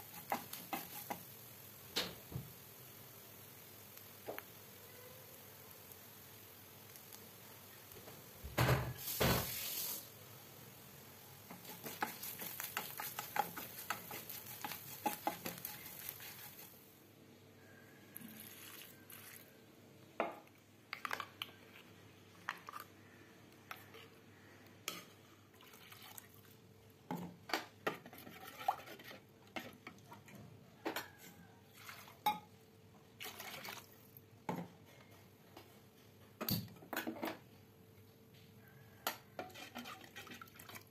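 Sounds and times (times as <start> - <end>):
wooden spoon scraping steel pot: 0.0 - 1.3, 11.5 - 16.7, 27.8 - 30.0, 39.4 - 40.6
hiss: 8.8 - 16.8.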